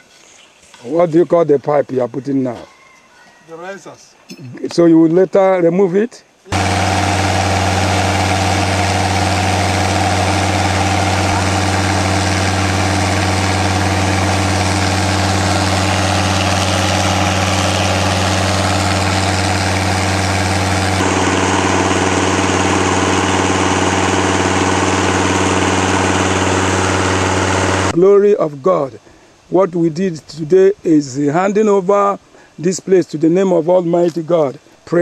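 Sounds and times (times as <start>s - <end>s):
air and water hissing from well: 6.5s - 27.9s
air compressor engine droning: 6.5s - 28.0s.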